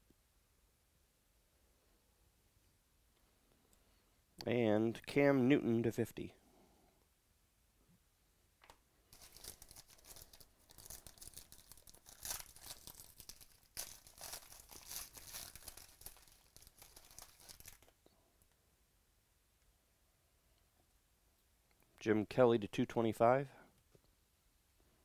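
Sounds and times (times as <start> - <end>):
foil wrapper tearing and crinkling: 9.1 - 17.9.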